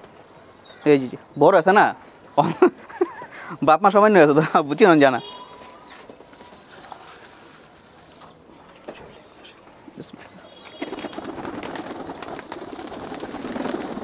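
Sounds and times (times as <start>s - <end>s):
pigeons pecking on concrete: 5.2s - 9.2s, 10.6s - 14.0s
pigeon wings flapping: 10.7s - 14.0s.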